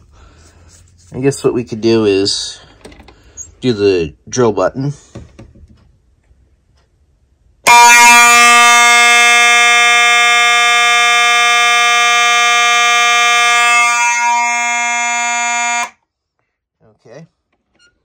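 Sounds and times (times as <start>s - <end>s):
fire alarm horn buzzing: 7.6s - 16.0s.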